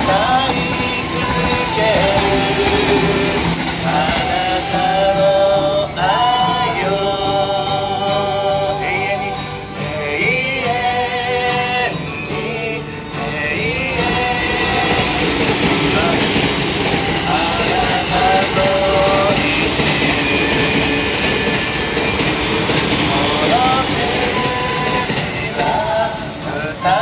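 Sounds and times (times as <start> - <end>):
woman singing with vibrato: 0.0 - 11.9, 13.5 - 21.4, 23.1 - 27.0
acoustic guitar: 0.0 - 27.0
flute: 0.0 - 27.0.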